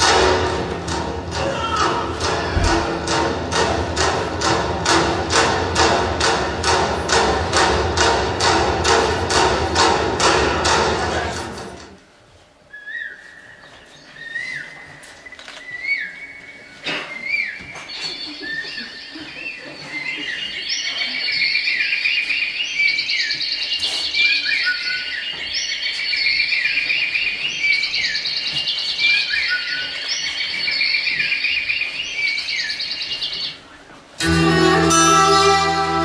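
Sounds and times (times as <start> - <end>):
birds chirping and trilling: 12.7 - 33.7
bowed string music with violin: 34.2 - 36.0.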